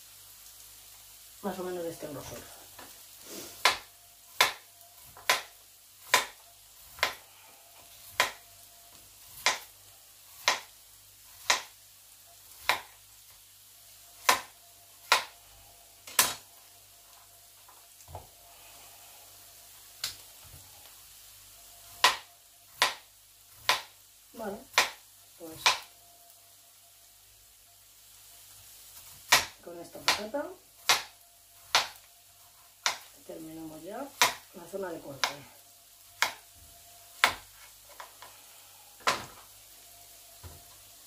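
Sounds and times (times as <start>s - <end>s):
knife tapping cutting board: 3.6s - 4.6s, 5.2s - 5.5s, 8.2s - 8.4s, 36.2s - 36.4s, 37.2s - 37.5s.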